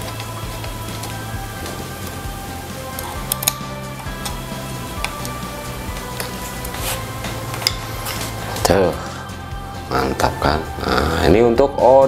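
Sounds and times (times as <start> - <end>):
background music: 0.0 - 12.0
metal parts clicking: 2.9 - 4.4.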